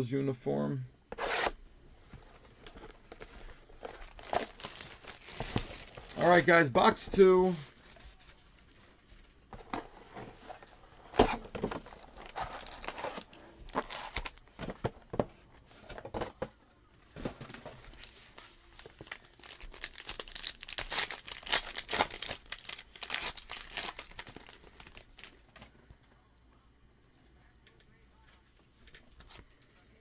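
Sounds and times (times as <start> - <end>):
wrappers being torn and crinkled: 4.0 - 6.6, 12.0 - 14.4, 17.9 - 25.4.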